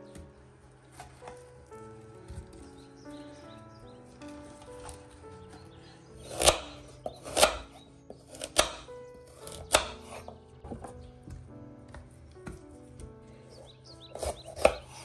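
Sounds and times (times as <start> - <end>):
soft background music: 0.0 - 15.0
knife chopping on wooden board: 6.2 - 10.9, 14.1 - 15.0.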